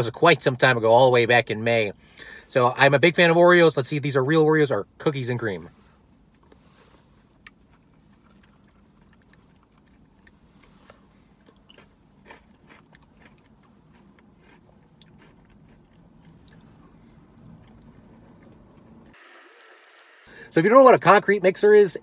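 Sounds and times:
chewing: 0:07.4 - 0:19.0.

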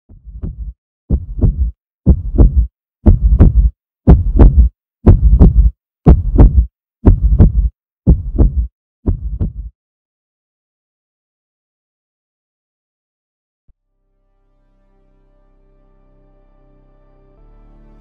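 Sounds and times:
heartbeat double thump: 0:00.1 - 0:09.7.

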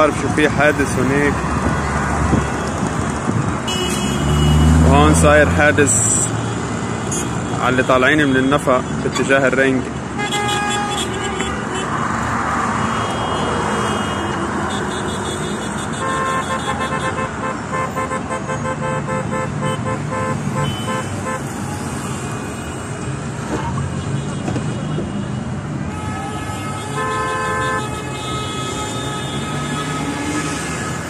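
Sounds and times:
steady road noise: 0:00.0 - 0:31.0
car horns honking: 0:01.6 - 0:12.1, 0:12.7 - 0:23.0, 0:23.9 - 0:31.0.

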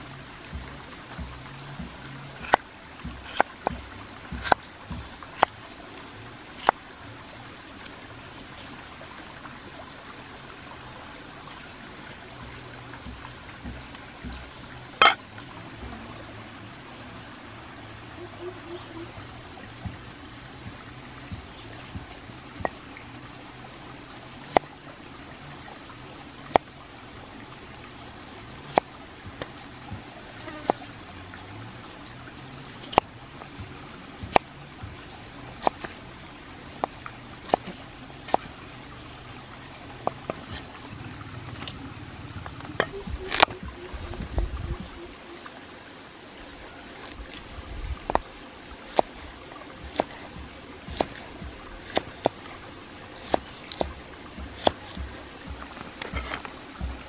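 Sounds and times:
high insect drone: 0:00.0 - 0:57.0
cleaver chopping on wooden board: 0:00.5 - 0:05.6, 0:15.0 - 0:15.2, 0:35.6 - 0:35.9, 0:37.5 - 0:38.5, 0:48.9 - 0:49.2, 0:49.8 - 0:52.5, 0:53.2 - 0:57.0.

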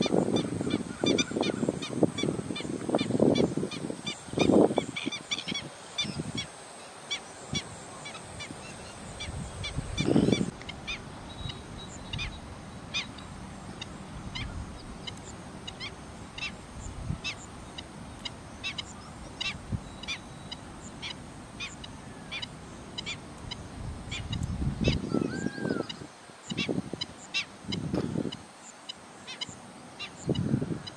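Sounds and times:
birds yelping alarm calls: 0:00.0 - 0:06.5, 0:13.8 - 0:16.6, 0:17.2 - 0:30.9.

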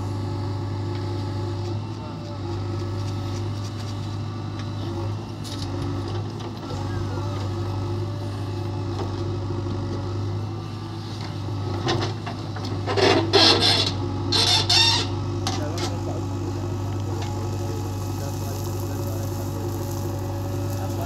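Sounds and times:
diesel engine running: 0:00.0 - 0:21.0.

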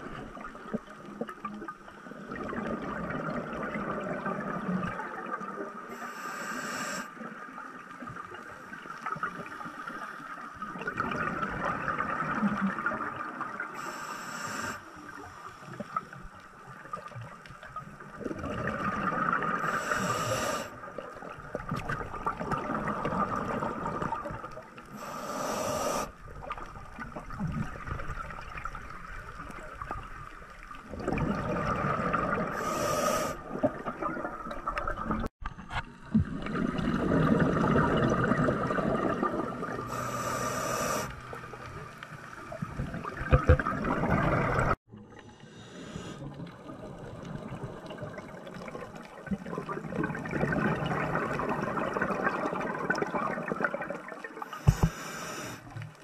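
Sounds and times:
regulator hissing inhale: 0:05.9 - 0:07.2, 0:13.8 - 0:14.9, 0:19.6 - 0:20.8, 0:24.9 - 0:26.2, 0:32.5 - 0:33.5, 0:39.9 - 0:41.4, 0:45.2 - 0:46.3, 0:54.4 - 0:55.8.

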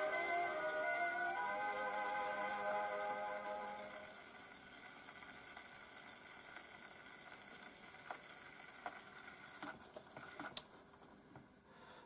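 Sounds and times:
record surface noise hiss and crackle: 0:00.0 - 0:11.8.

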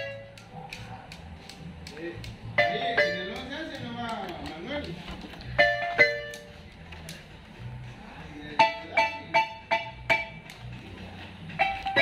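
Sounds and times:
marimba notes: 0:02.6 - 0:03.5, 0:05.6 - 0:06.5, 0:08.6 - 0:10.5.

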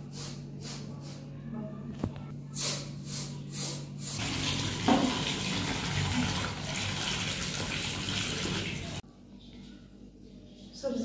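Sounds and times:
rice washed in bowl of water: 0:04.2 - 0:09.0.

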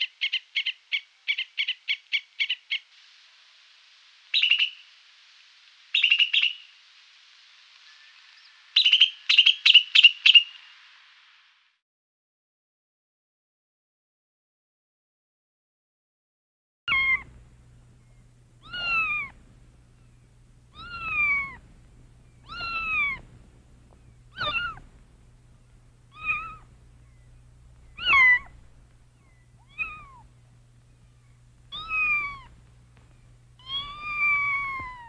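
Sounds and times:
cat meowing: 0:16.9 - 0:17.3, 0:18.6 - 0:19.4, 0:20.7 - 0:21.6, 0:22.4 - 0:23.2, 0:24.3 - 0:24.8, 0:26.1 - 0:26.7, 0:28.0 - 0:28.6, 0:29.2 - 0:30.3, 0:31.7 - 0:32.6, 0:33.6 - 0:35.0
faint low hum: 0:16.9 - 0:35.0.

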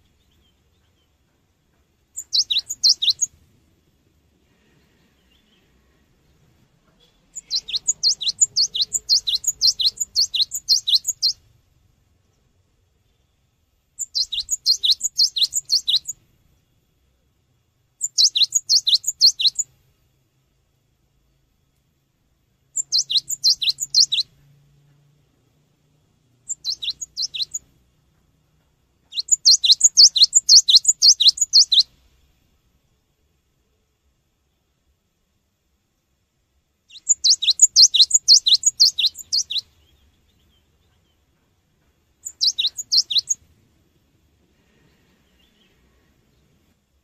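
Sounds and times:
bird singing rapid high notes: 0:02.2 - 0:03.3, 0:07.0 - 0:11.4, 0:14.0 - 0:16.2, 0:18.0 - 0:19.7, 0:22.8 - 0:24.3, 0:26.5 - 0:27.7, 0:29.1 - 0:31.9, 0:36.9 - 0:40.0, 0:42.2 - 0:43.4.

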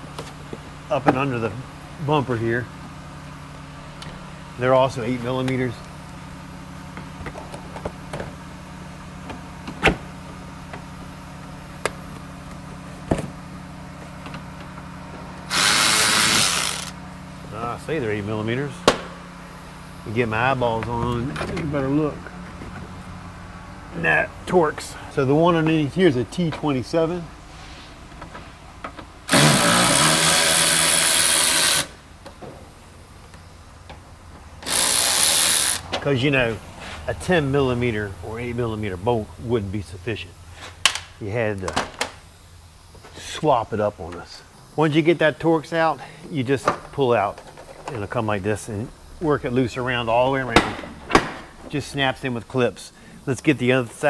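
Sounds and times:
low shop hum: 0:00.0 - 0:54.0
cordless power driver running: 0:05.4 - 0:17.2, 0:28.9 - 0:32.3, 0:34.4 - 0:36.0.

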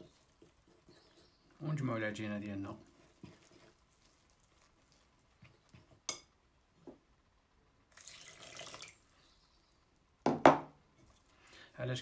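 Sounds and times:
water pouring onto flour: 0:07.9 - 0:09.0.

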